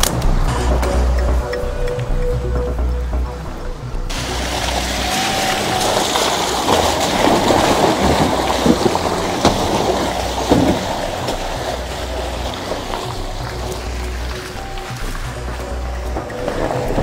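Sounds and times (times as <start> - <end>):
tyres churning through mud and water: 0.0 - 17.0
sharp splashes and knocks: 4.1 - 17.0.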